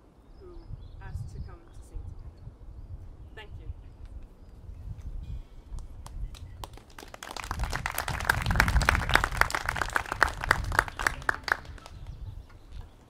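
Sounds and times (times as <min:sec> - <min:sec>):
audience clapping: 0:05.8 - 0:12.3.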